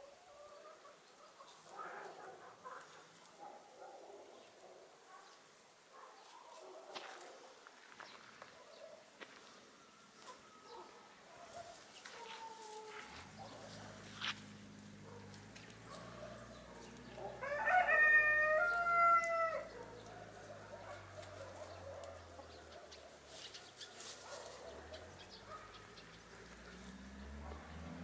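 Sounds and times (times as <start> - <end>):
rooster crowing: 17.4 - 19.7.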